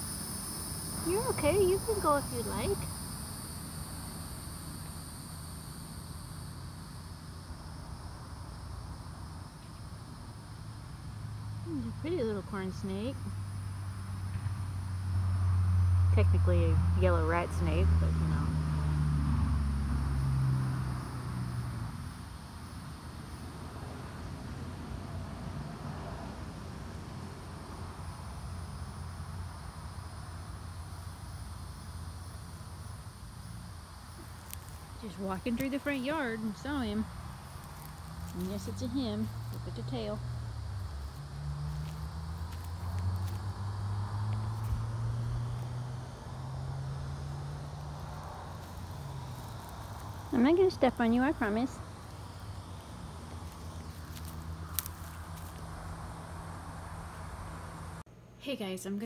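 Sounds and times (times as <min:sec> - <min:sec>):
insects droning: 0:00.0 - 0:59.0
steady low rumble: 0:29.5 - 0:58.1.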